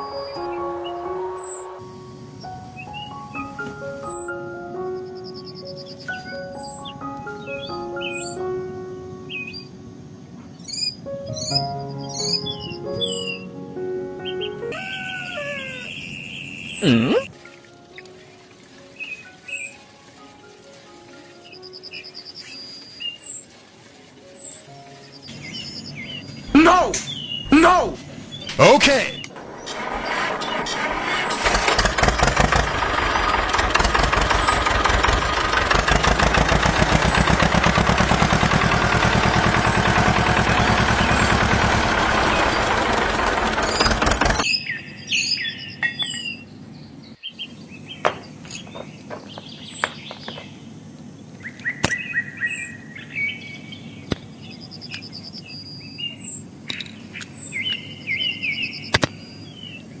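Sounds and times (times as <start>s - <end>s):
birds chirping: 0.0s - 60.0s
toy tractor motor buzzing: 29.4s - 44.4s.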